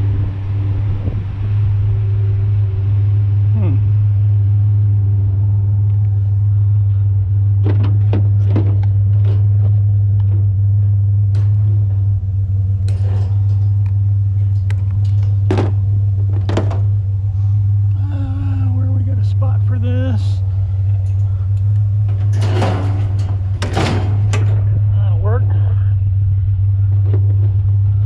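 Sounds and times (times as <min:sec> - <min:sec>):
truck engine and road drone: 0:00.0 - 0:28.0
knocks and rattles in cab: 0:07.5 - 0:17.9, 0:20.5 - 0:24.8.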